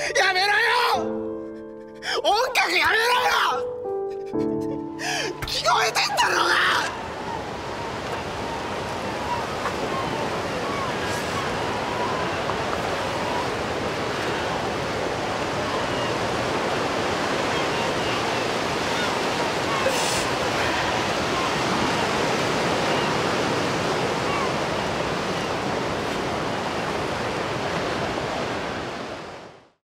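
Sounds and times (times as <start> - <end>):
wind: 0.0 - 29.8
surf washing against breakwater: 5.5 - 29.6.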